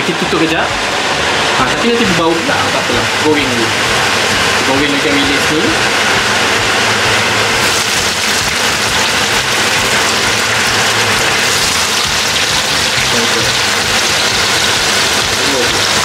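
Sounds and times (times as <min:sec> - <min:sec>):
extractor fan whoosh: 0:00.6 - 0:12.2
fish frying in hot oil: 0:02.2 - 0:16.0.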